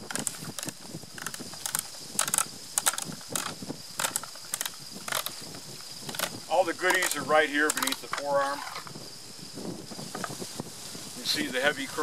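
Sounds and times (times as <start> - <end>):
shotgun metallic clicks and rattles: 0.0 - 8.9.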